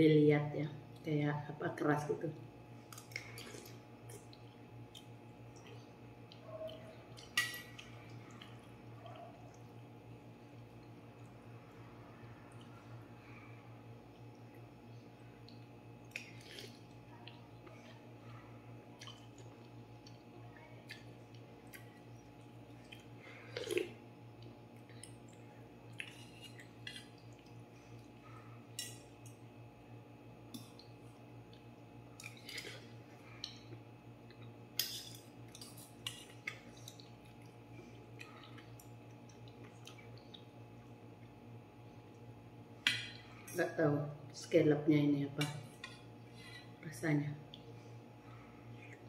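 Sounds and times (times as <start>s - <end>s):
low steady hum: 0.0s - 49.0s
slurping and chewing: 15.4s - 18.2s, 20.8s - 29.3s, 30.5s - 41.0s.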